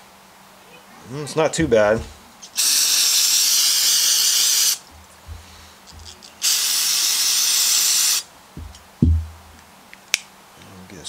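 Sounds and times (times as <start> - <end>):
aerosol can spraying: 2.5 - 4.8, 5.9 - 8.3.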